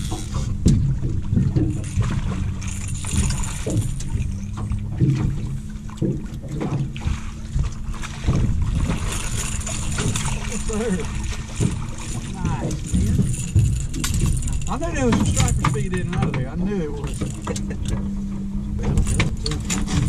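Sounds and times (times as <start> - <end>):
steady low hum: 0.0 - 20.0
water lapping boat hull: 0.0 - 20.0
wind buffeting microphone: 0.0 - 20.0
knocks and rustles on deck: 7.6 - 10.4.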